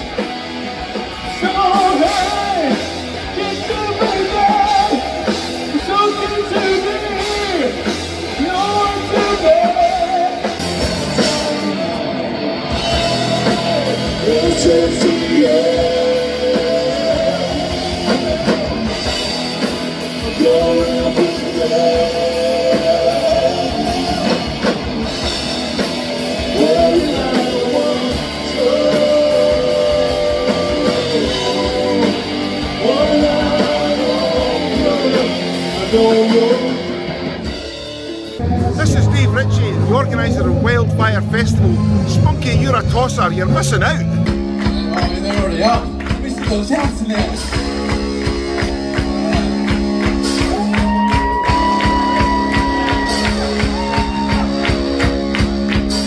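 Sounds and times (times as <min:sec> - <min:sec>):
live rock band: 0:00.0 - 0:56.0
person singing: 0:01.1 - 0:24.9, 0:26.2 - 0:37.3.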